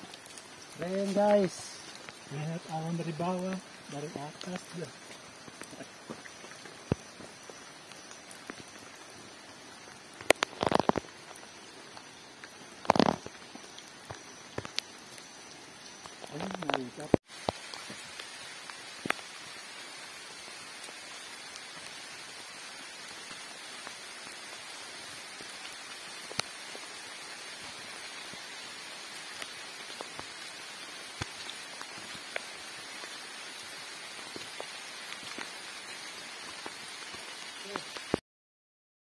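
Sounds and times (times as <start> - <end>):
rain hiss: 0.0 - 38.2
raindrops ticking nearby: 0.0 - 38.2.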